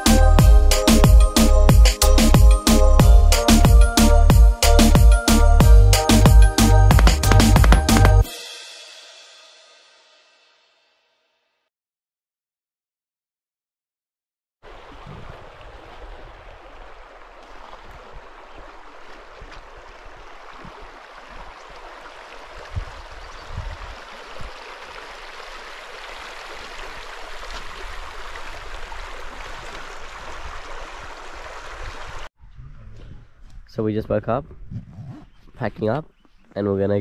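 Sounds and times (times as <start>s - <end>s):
stream rushing: 14.6s - 32.3s.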